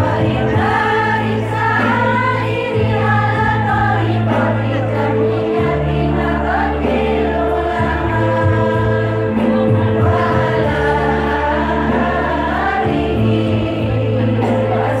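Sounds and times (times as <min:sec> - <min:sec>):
sustained accompaniment with bass: 0:00.0 - 0:15.0
women's choir singing: 0:00.0 - 0:15.0.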